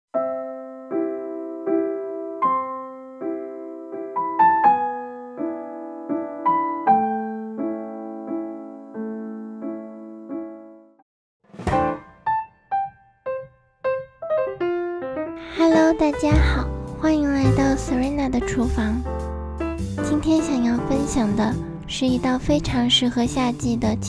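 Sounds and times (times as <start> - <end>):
gentle piano music: 0.1 - 11.0, 11.7 - 24.0.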